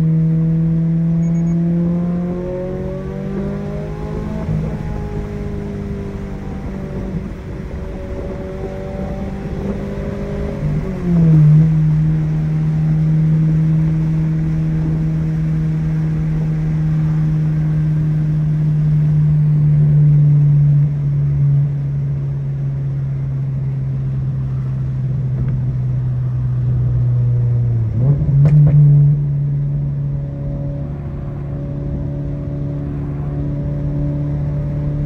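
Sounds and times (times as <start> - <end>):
car engine droning: 0.0 - 35.0.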